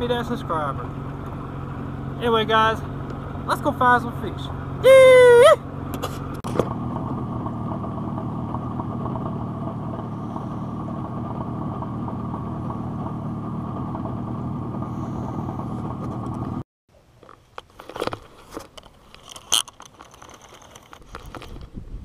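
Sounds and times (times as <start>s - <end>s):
outboard motor running: 0.0s - 16.6s.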